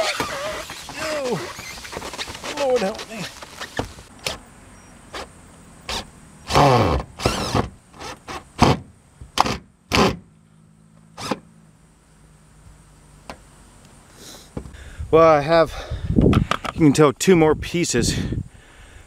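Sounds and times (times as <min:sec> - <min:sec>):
cordless drill driving screws: 0:05.9 - 0:08.8.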